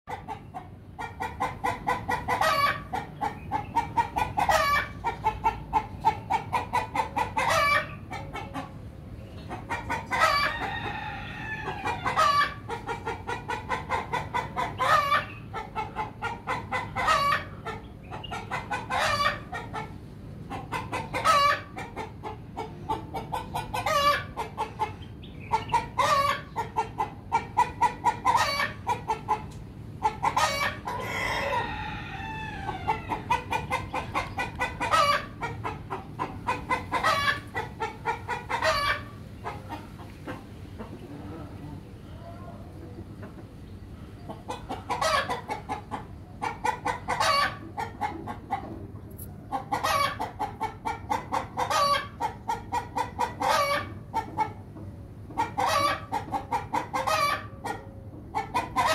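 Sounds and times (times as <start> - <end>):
chickens clucking: 0.1 - 58.9
rooster crowing: 10.2 - 12.6, 30.5 - 33.3.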